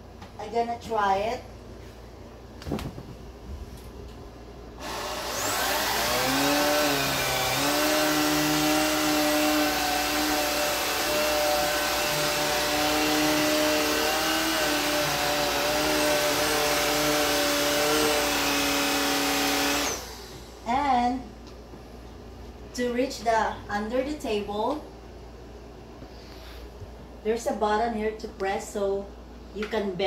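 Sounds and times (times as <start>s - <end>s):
vacuum cleaner motor whining: 4.8s - 20.5s.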